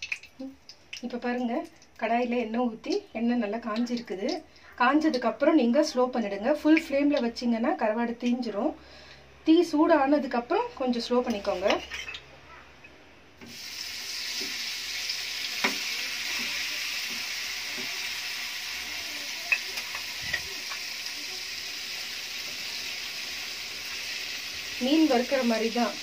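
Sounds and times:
fish sizzling in hot oil: 13.4 - 26.0.

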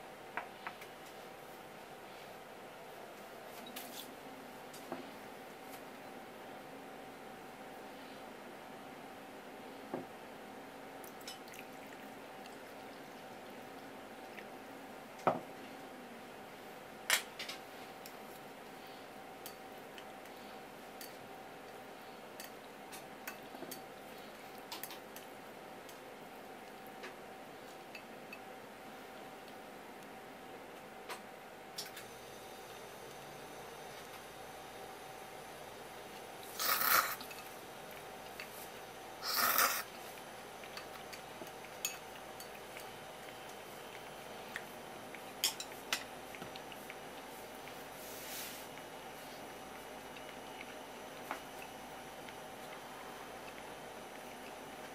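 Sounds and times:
person slurping: 36.4 - 37.3, 39.2 - 40.0.

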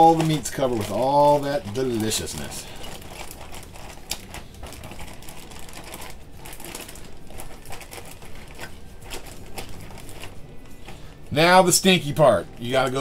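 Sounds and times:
plastic bag crinkling: 0.0 - 13.0.

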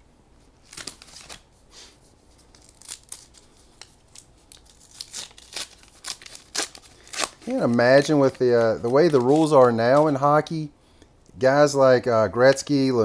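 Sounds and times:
foil wrapper crinkling and tearing: 0.6 - 1.5, 2.3 - 10.5.

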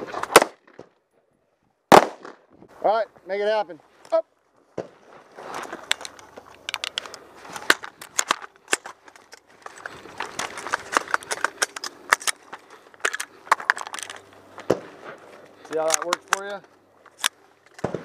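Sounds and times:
rifle action metallic clicks: 5.9 - 14.3, 15.7 - 18.0.

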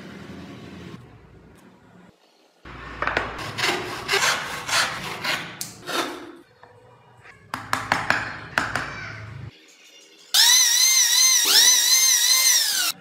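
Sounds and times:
wood rasping on flat surface: 3.4 - 6.2.

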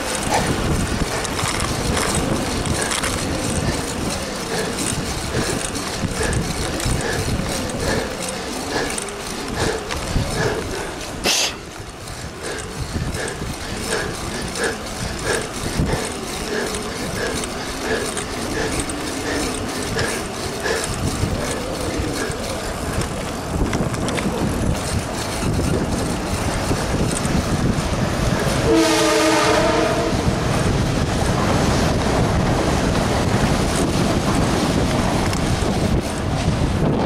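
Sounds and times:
light regular ticks: 0.0 - 28.6, 33.4 - 36.4
bicycle tyres on paved road: 0.0 - 37.0
wind rushing over microphone: 0.0 - 37.0
horn chord: 28.7 - 30.1.

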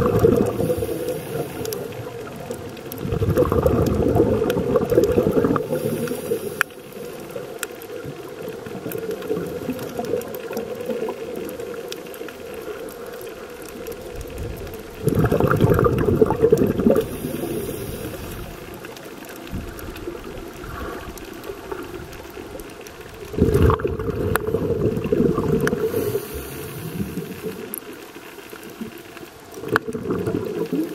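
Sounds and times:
loud bubbling bursts: 0.0 - 1.2, 3.0 - 6.4, 15.0 - 17.3, 23.3 - 27.6, 29.6 - 30.9
muffled underwater noise: 0.0 - 30.9.

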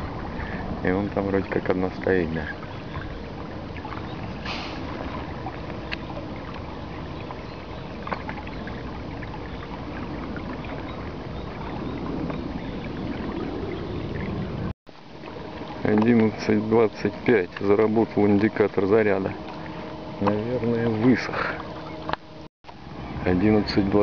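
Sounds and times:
water rushing along boat hull: 0.0 - 24.0
wind on microphone: 2.6 - 14.7
brief hiss: 4.4 - 4.9.

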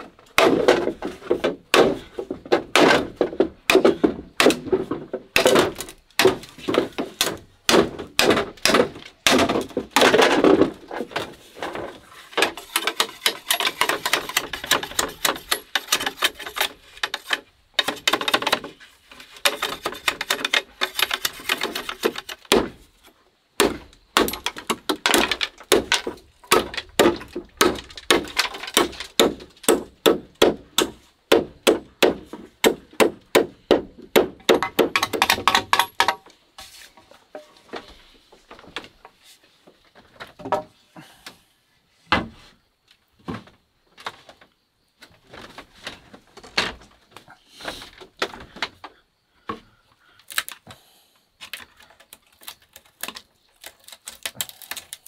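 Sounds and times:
knife chopping bamboo: 0.4 - 4.8, 5.4 - 10.6, 19.4 - 22.8, 23.6 - 36.2.

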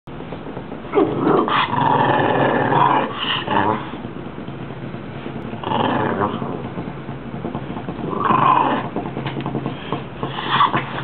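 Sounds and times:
dog growling: 0.9 - 4.1, 5.4 - 11.0.

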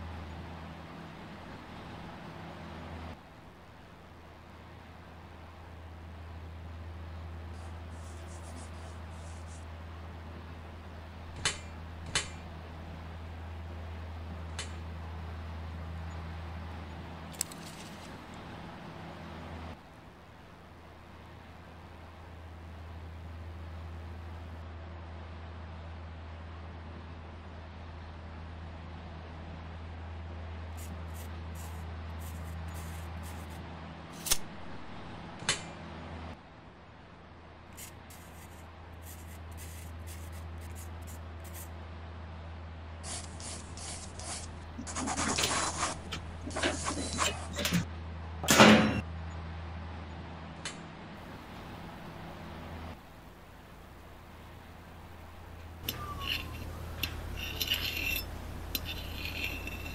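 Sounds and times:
steady low hum: 0.0 - 59.9
pencil scratching: 7.6 - 9.7, 30.8 - 33.6, 37.8 - 41.7, 43.0 - 47.5, 57.4 - 59.9.

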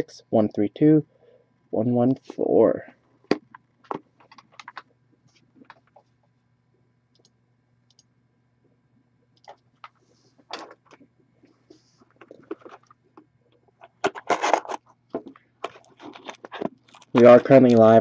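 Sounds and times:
shrink wrap crinkling and ripping: 15.6 - 18.0.

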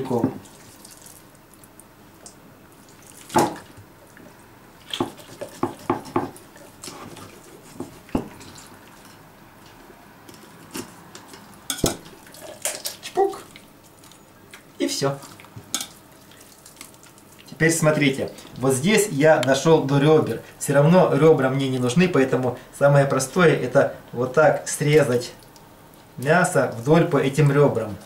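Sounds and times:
knife cutting fish on board: 4.9 - 8.4.

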